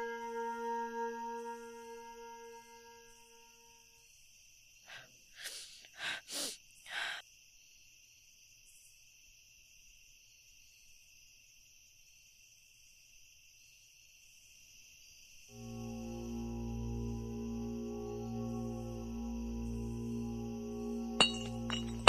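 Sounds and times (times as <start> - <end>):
crickets chirring: 1.0 - 22.0
woman sobbing and sniffing: 4.9 - 7.2.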